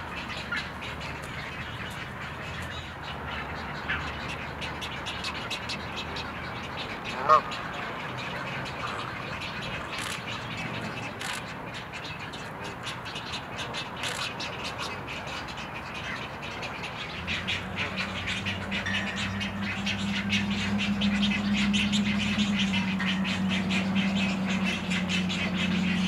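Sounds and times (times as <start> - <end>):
steady low hum: 16.6 - 26.0.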